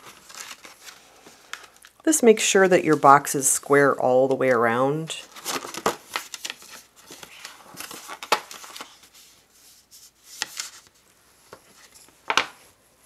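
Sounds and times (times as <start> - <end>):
cardstock folding and rubbing: 0.0 - 11.9.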